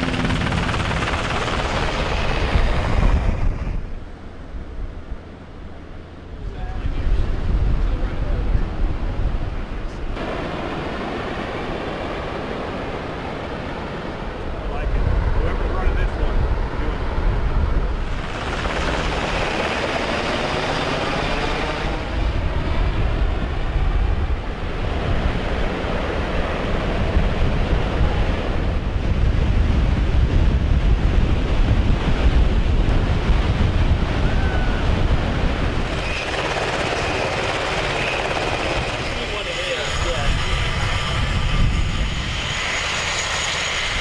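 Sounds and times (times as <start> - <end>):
wind buffeting microphone: 0.0 - 5.3, 6.3 - 44.0
distant helicopter: 0.0 - 44.0
ocean surf breaking: 10.1 - 16.0.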